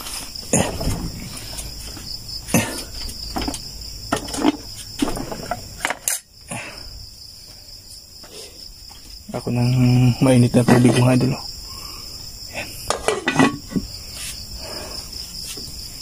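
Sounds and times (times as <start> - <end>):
sharp knocks and clatters: 0.0 - 6.2
crickets chirping: 0.0 - 16.0.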